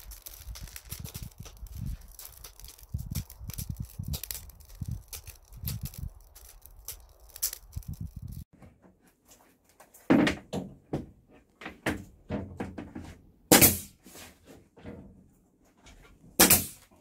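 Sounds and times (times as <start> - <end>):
wood fire crackling: 0.0 - 8.5.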